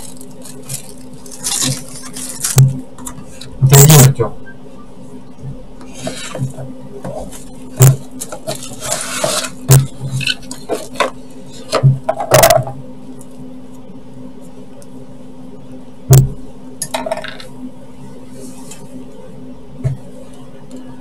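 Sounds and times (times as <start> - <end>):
cardboard and plastic rustling: 0.0 - 3.7, 5.9 - 12.0
steady low hum: 0.0 - 21.0.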